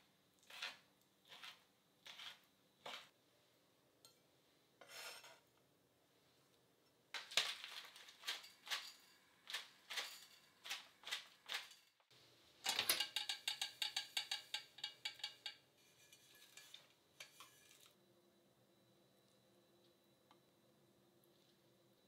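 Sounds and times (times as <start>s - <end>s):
dried shrimp crackling in a pan: 7.2s - 12.1s.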